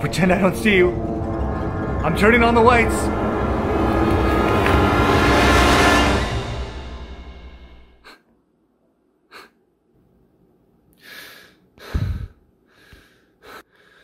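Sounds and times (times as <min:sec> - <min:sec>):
man breathing hard: 0:11.0 - 0:14.0
man gasping: 0:11.0 - 0:14.0.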